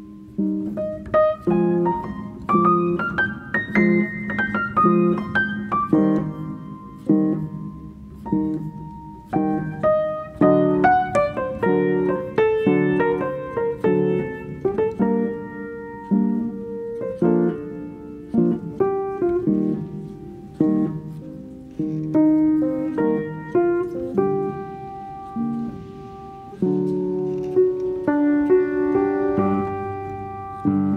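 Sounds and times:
slow piano music: 0.0s - 30.9s.

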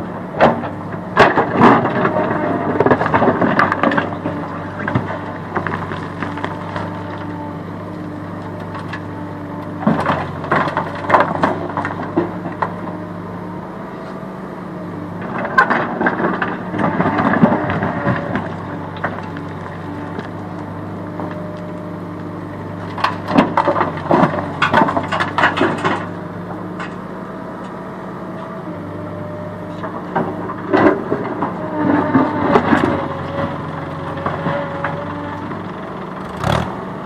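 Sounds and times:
diesel engine running: 0.0s - 37.0s
rocks and gravel clattering: 0.4s - 13.0s, 15.2s - 27.1s, 27.7s - 36.7s.

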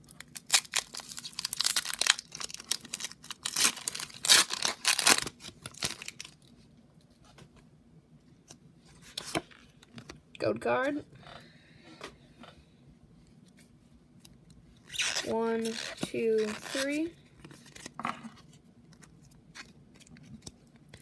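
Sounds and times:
foil wrapper tearing and crinkling: 0.1s - 6.4s.

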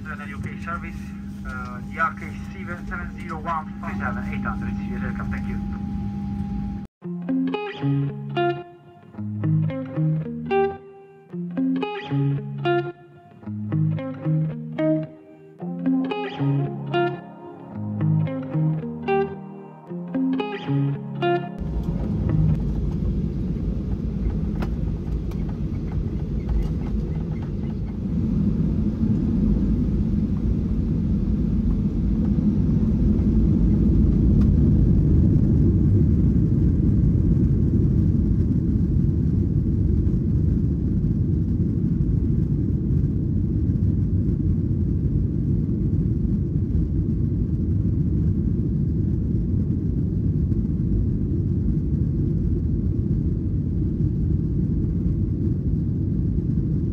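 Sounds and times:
jet engine and air rumble in cabin: 0.0s - 6.9s, 21.6s - 56.9s.

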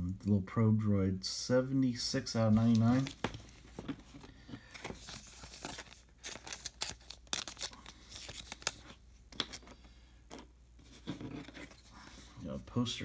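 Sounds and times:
cards being shuffled: 2.5s - 11.9s.

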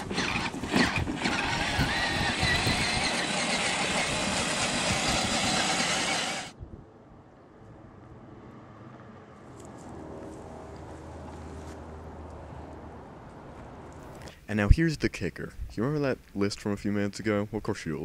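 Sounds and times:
toy car motor and gears running: 0.0s - 6.5s
faint outdoor background: 0.0s - 18.0s.

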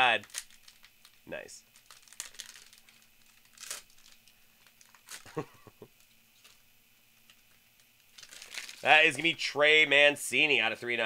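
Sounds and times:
foil wrapper crinkling and tearing: 0.0s - 5.5s, 7.2s - 9.4s.

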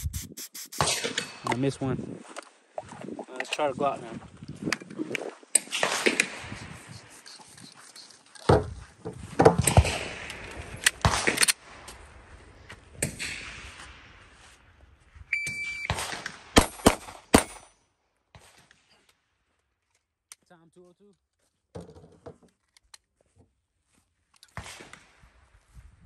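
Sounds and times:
handling knocks and clatter: 8.3s - 10.2s
shot timer beep: 15.3s - 15.9s
pistol shots: 15.9s - 17.7s.

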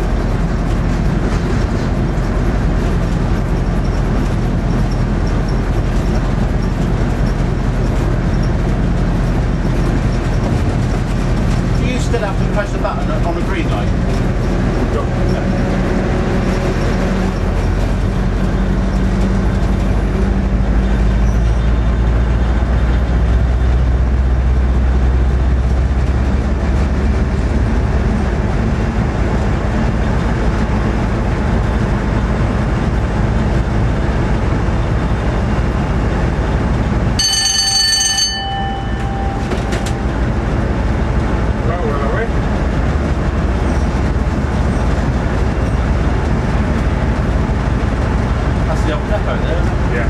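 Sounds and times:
diesel locomotive engine running: 0.0s - 50.0s
wheel and rail noise: 0.0s - 50.0s
high ringing tone: 37.2s - 40.7s.

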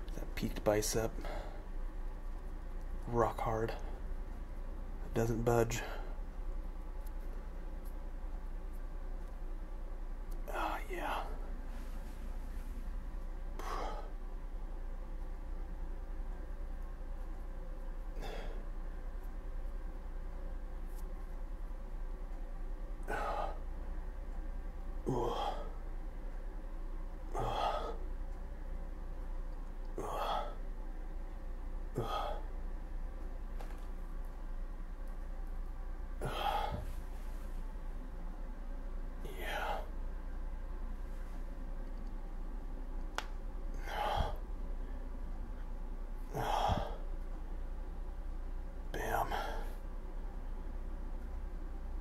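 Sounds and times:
steady low hum: 0.0s - 52.0s
man breathing heavily: 1.1s - 1.8s, 13.5s - 14.2s, 18.1s - 18.7s, 23.0s - 23.8s, 25.0s - 25.8s, 27.3s - 28.2s, 29.9s - 30.7s, 31.9s - 32.6s, 36.2s - 37.6s, 39.3s - 40.0s, 43.7s - 45.1s, 46.2s - 47.2s, 49.0s - 49.8s
man breathing out hard: 27.4s - 28.0s, 36.2s - 37.0s, 43.8s - 44.4s, 46.3s - 47.0s.

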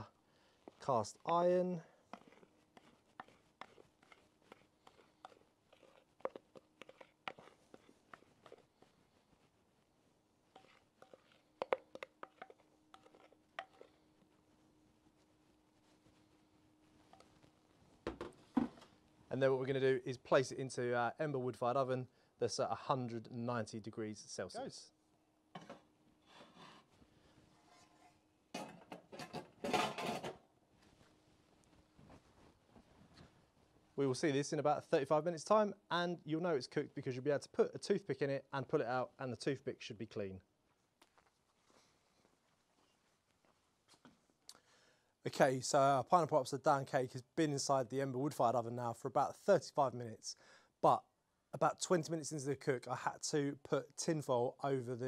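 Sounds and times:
wooden spoon scraping bowl: 0.7s - 9.6s, 10.5s - 14.0s, 29.2s - 30.4s.

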